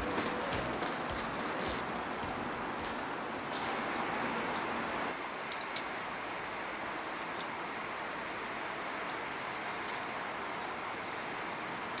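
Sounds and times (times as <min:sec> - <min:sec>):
steady outdoor rushing noise: 0:00.0 - 0:12.0
small bird chirping: 0:05.8 - 0:06.2, 0:08.6 - 0:09.0, 0:11.1 - 0:11.5.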